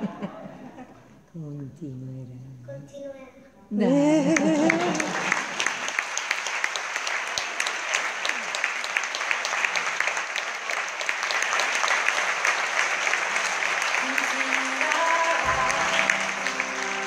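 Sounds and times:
audience applauding: 4.1 - 17.0.

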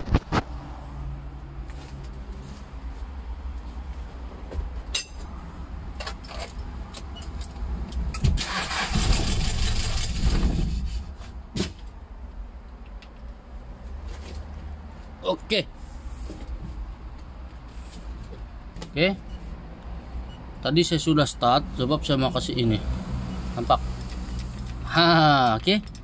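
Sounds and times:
diesel engine cranking on starter: 8.2 - 11.0.

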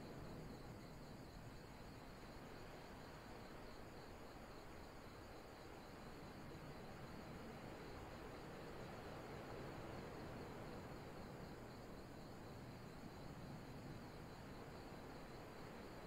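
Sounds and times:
night insects trilling: 0.0 - 16.0.

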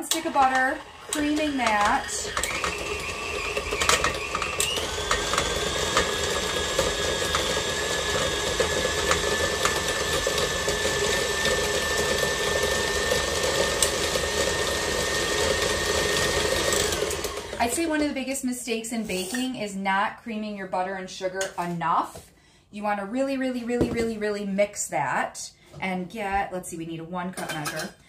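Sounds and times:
stand mixer motor whine: 0.1 - 17.9.

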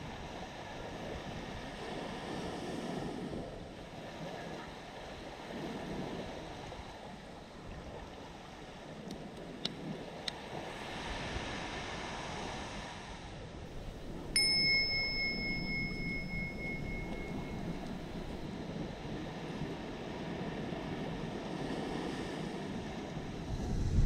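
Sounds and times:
surf: 0.0 - 24.0
wind: 0.0 - 24.0
bell chime: 13.8 - 18.4.

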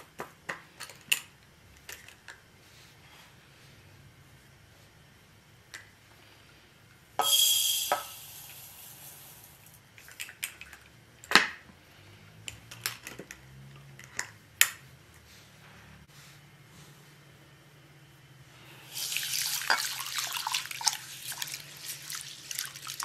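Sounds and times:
glass jar clicks and clinks: 7.2 - 8.7
rice grains pouring into bowl: 7.2 - 9.8, 18.8 - 23.0.

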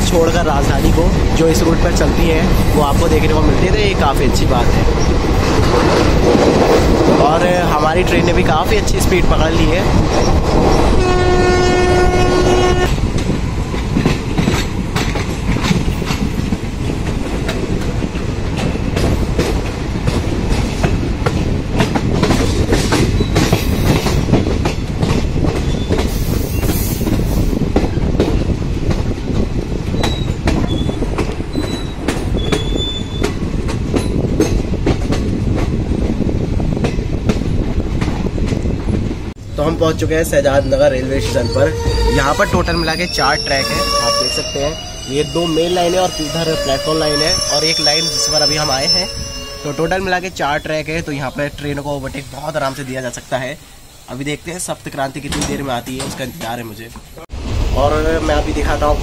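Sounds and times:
train wheels clattering: 0.0 - 11.4, 12.8 - 39.2, 54.9 - 57.1
train horn: 10.9 - 13.0, 43.4 - 49.9
faint high squeals: 40.4 - 50.9.

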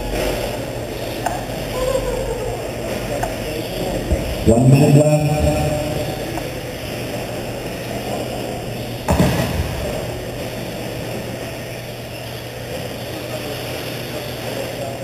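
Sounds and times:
indoor hall hum: 0.0 - 15.0
loud knock: 9.1 - 10.1.

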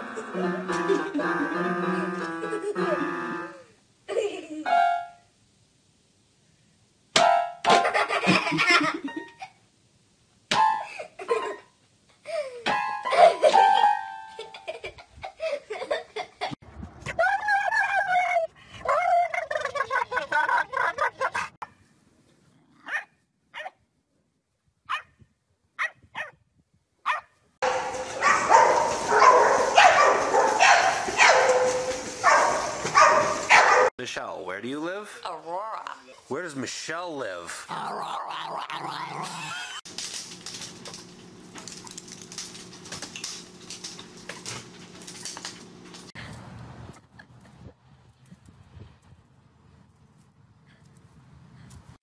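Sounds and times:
dog barking: 22.8 - 23.8, 24.9 - 25.1, 25.8 - 26.4, 27.0 - 33.9.

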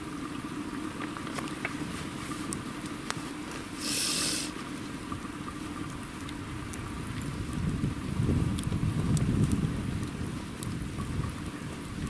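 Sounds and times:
campfire crackling and popping: 0.2 - 12.0
burst of hiss: 3.8 - 4.6.

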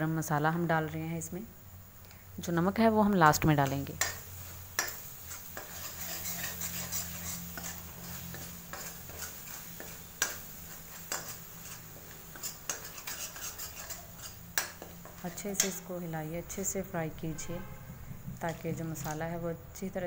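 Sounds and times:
low steady hum: 0.0 - 20.0
spoon stirring and scraping pan: 3.6 - 19.4.

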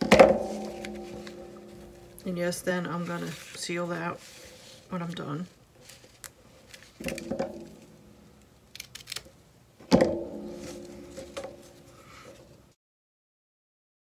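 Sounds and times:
paper packet rustling: 3.0 - 7.9, 8.7 - 9.4.

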